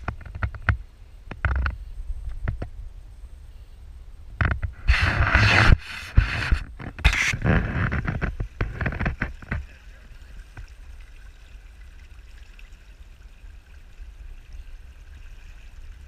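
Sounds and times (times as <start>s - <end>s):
faint water noise: 0.0s - 16.0s.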